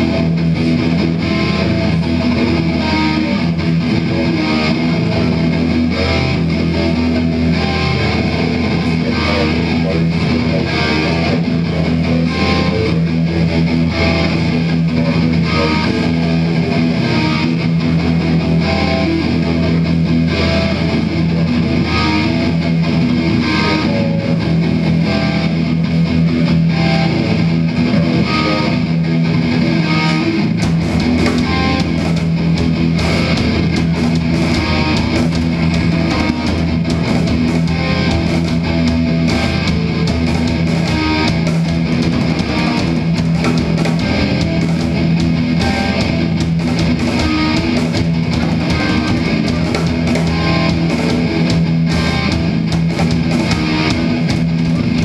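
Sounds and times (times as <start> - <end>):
deep bass: 0.0 - 55.0
metal band with electric guitars: 0.0 - 55.0.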